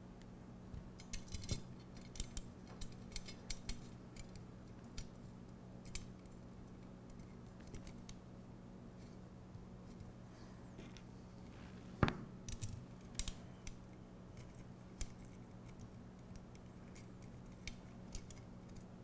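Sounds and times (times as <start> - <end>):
small metal bolts clicking: 1.0 - 5.1, 12.5 - 13.8, 14.4 - 18.9.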